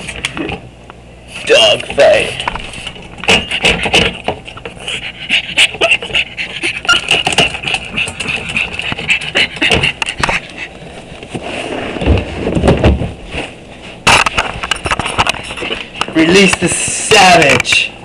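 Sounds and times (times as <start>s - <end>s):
dog panting: 3.3s - 11.0s.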